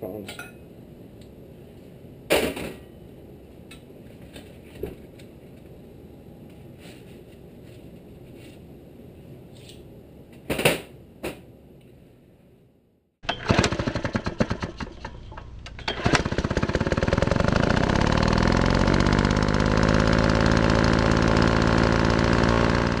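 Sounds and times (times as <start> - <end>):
engine starting and running: 13.2 - 23.0.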